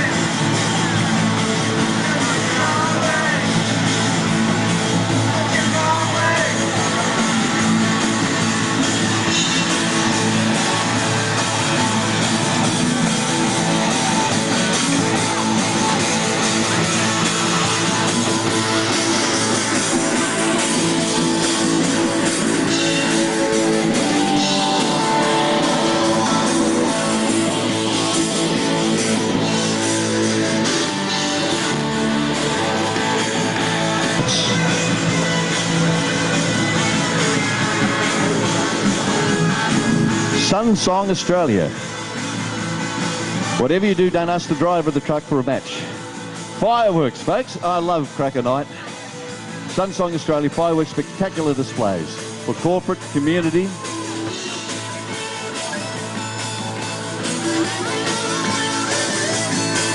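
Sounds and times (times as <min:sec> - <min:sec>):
drum kit: 0:00.0 - 0:44.0
electric guitar: 0:00.0 - 0:59.9.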